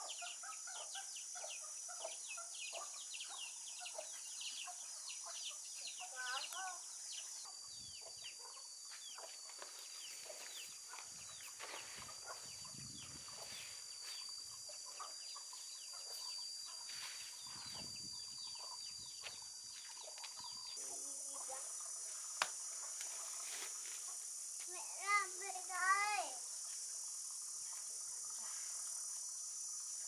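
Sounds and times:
chickens chirping: 0:00.0 - 0:06.8, 0:07.4 - 0:19.3
high insect buzz: 0:00.0 - 0:30.0.

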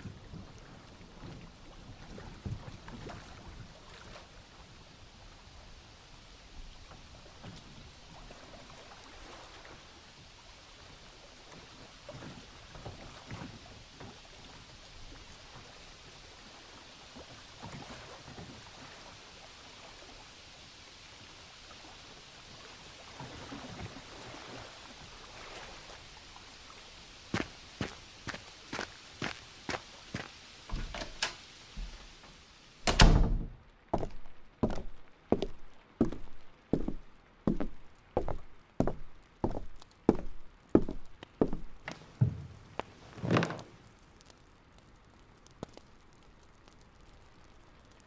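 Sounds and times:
rain and water: 0:00.0 - 0:48.0
footstep: 0:27.4 - 0:32.0, 0:33.9 - 0:43.8.

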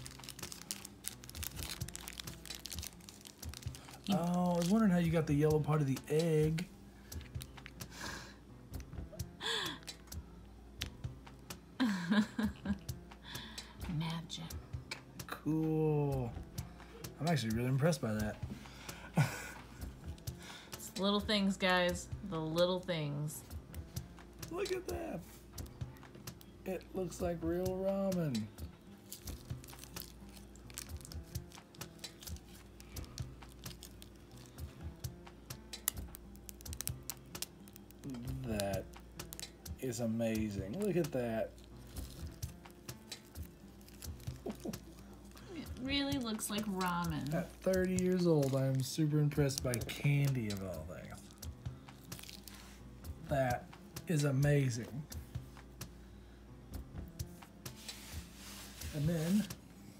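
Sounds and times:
plastic packet crinkling: 0:00.0 - 0:05.8, 0:29.0 - 0:34.6, 0:35.8 - 0:39.5, 0:40.2 - 0:52.6
faint background music: 0:00.0 - 0:59.9.

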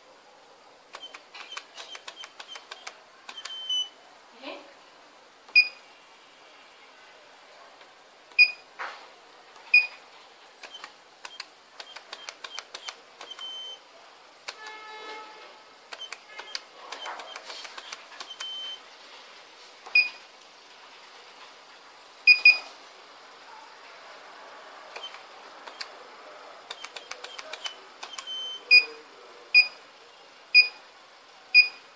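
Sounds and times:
keypad clicks: 0:00.9 - 0:03.8, 0:10.6 - 0:13.6, 0:14.5 - 0:14.8, 0:15.9 - 0:18.6, 0:25.0 - 0:25.9, 0:26.7 - 0:28.4
keypad beeping: 0:01.0 - 0:03.9, 0:08.4 - 0:08.6, 0:09.7 - 0:10.0, 0:10.6 - 0:13.8, 0:15.9 - 0:18.8, 0:22.3 - 0:22.6, 0:25.0 - 0:25.9, 0:26.7 - 0:28.9
louder alarm panel beeps: 0:03.3 - 0:03.9, 0:13.3 - 0:13.8.

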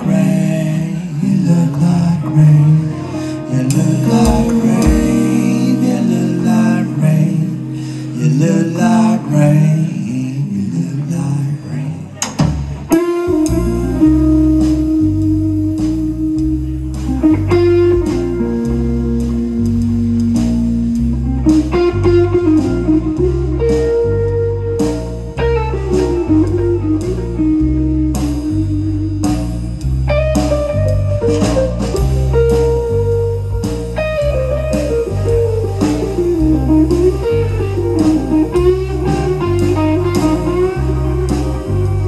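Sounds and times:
electric guitar sustained notes: 0:00.0 - 0:09.8, 0:13.0 - 0:42.0
electric bass: 0:00.0 - 0:42.0
drum kit steady beat: 0:03.7 - 0:08.3, 0:12.2 - 0:42.0.

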